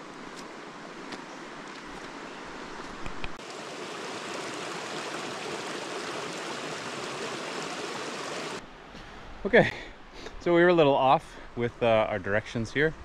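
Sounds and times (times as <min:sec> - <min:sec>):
creek rushing over cobbles: 0:03.4 - 0:08.6.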